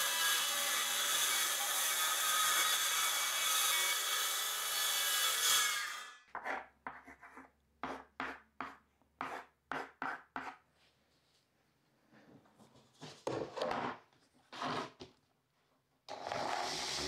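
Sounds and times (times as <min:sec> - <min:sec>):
pencil scratching on plywood: 0:06.3 - 0:10.6
circular saw cutting plywood: 0:16.1 - 0:17.0.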